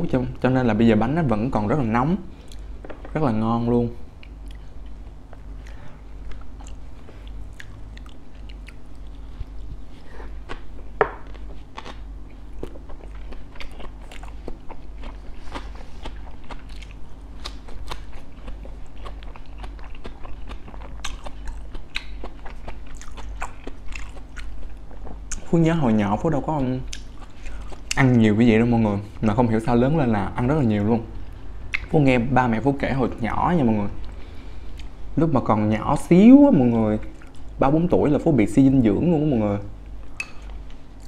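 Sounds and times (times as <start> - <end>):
steady low hum: 0.0 - 41.0
chewing and crunching: 4.1 - 25.6, 26.2 - 35.0.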